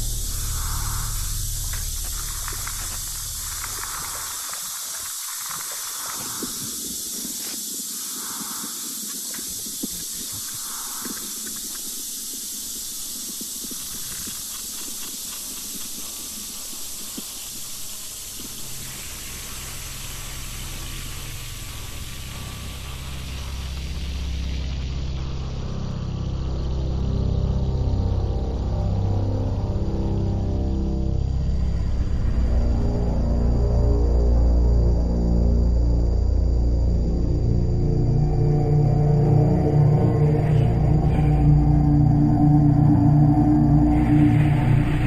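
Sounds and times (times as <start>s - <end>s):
low hum: 0.0s - 7.2s, 18.1s - 45.0s
steady hiss: 0.0s - 45.0s.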